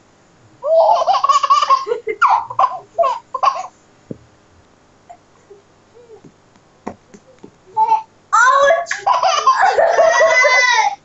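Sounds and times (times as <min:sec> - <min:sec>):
baby laughing: 0:00.6 - 0:03.7, 0:07.8 - 0:11.0
faint knock: 0:04.1 - 0:04.3, 0:06.2 - 0:07.6.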